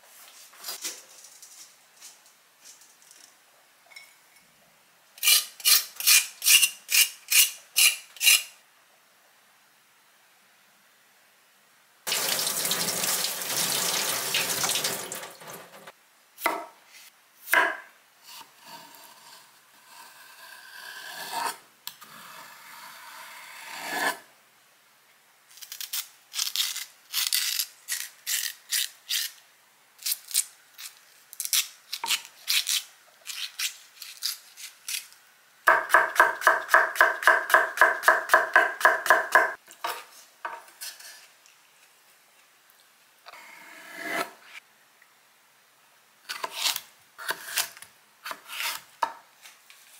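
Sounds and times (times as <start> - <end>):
knife scraping seeds: 5.2 - 8.5, 25.5 - 29.4, 46.3 - 48.9
tap water running: 12.1 - 15.9.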